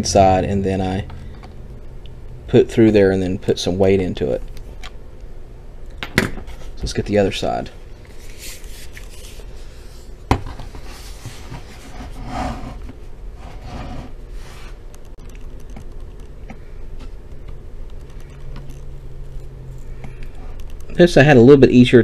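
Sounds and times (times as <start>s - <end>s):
hands rubbing and scraping laptop: 8.1s - 14.8s.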